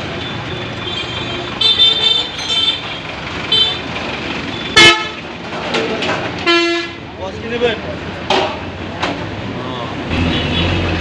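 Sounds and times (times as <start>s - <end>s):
street traffic: 0.0s - 11.0s
vehicle horns honking: 0.2s - 3.9s, 4.5s - 5.2s, 6.4s - 7.0s, 10.1s - 10.8s.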